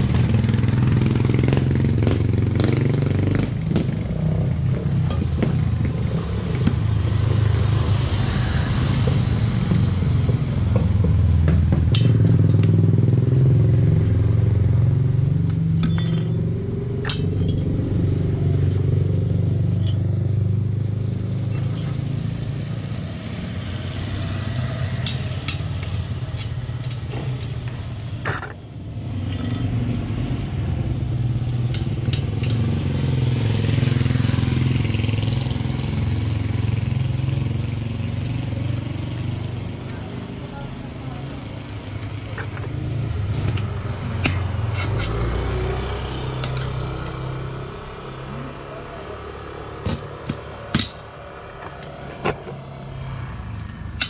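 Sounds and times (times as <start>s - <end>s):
low engine hum: 3.4s - 54.0s
tire levers clinking on rim: 5.0s - 5.5s, 15.8s - 17.7s, 19.7s - 20.2s, 25.0s - 29.8s.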